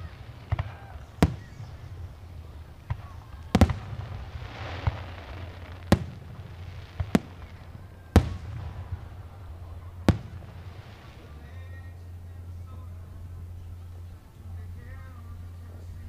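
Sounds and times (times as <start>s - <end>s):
fireworks bangs: 0.0s - 12.0s
hissing crackle: 0.0s - 12.4s.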